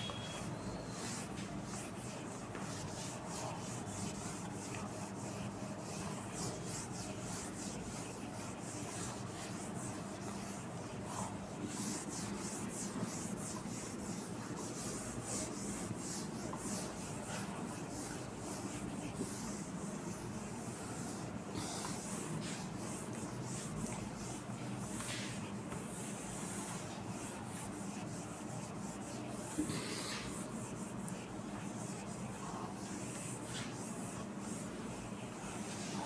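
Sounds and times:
cloth rubbing whiteboard: 0.0s - 36.0s.

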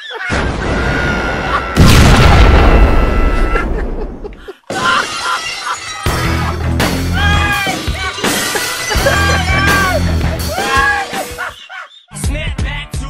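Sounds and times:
explosion boom: 0.3s - 4.4s
shattering debris crash: 0.3s - 7.2s
music: 5.8s - 13.0s.

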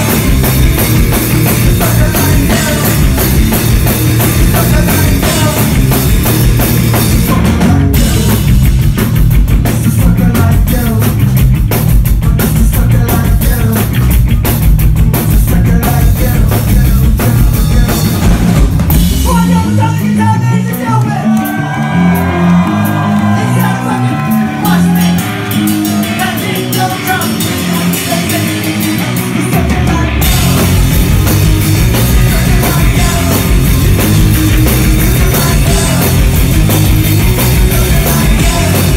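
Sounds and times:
electric guitar: 0.0s - 19.8s, 20.7s - 38.9s
drum kit: 0.0s - 38.9s
electric bass: 0.0s - 38.9s
live rock band playing: 0.0s - 38.9s
person singing: 1.5s - 3.6s, 4.4s - 6.0s, 19.2s - 30.8s, 31.9s - 36.5s, 37.4s - 38.9s.

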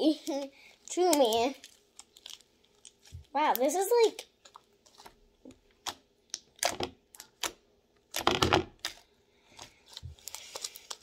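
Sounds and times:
slime clicking and crackling: 0.0s - 11.0s
slime squelching: 0.0s - 11.0s.

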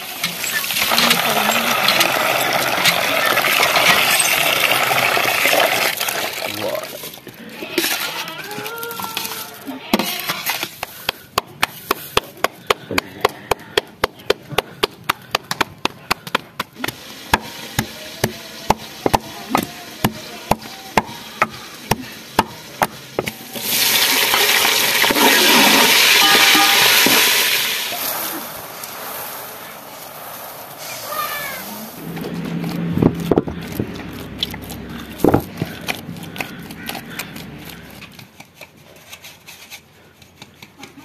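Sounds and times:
steady hiss: 25.7s - 32.0s.

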